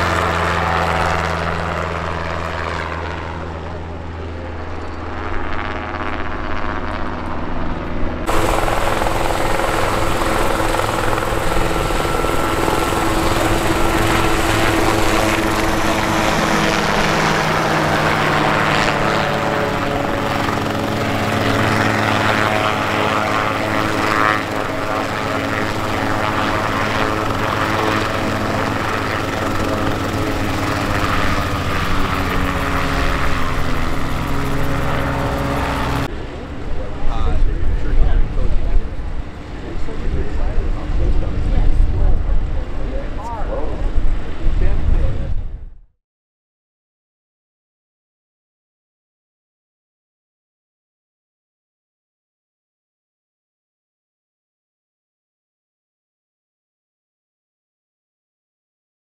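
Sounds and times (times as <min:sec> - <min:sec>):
helicopter engines and rotors: 0:00.0 - 0:45.7.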